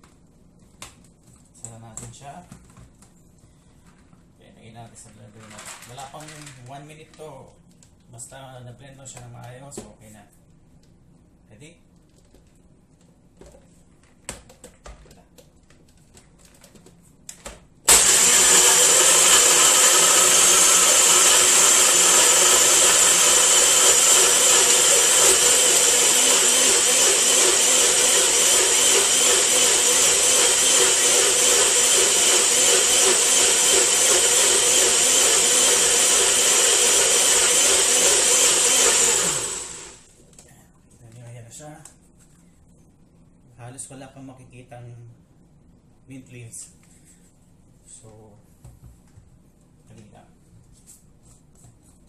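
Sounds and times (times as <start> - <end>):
blender motor whine: 17.9 - 40.1.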